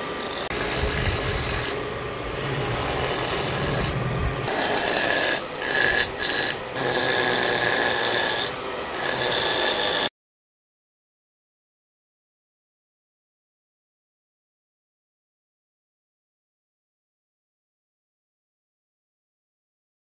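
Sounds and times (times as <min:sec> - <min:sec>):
rotary tool grinding wood: 0:00.0 - 0:10.1.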